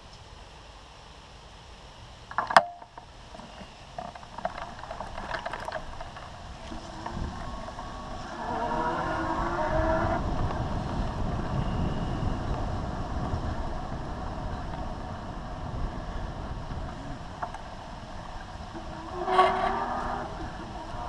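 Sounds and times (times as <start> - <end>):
wind and tyre rumble: 0.0 - 21.0
loud whistle-like squeal: 11.5 - 12.5.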